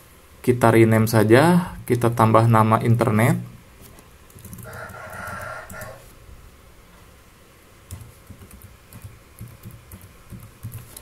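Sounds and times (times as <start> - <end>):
computer keyboard typing: 4.3 - 6.0, 7.9 - 11.0.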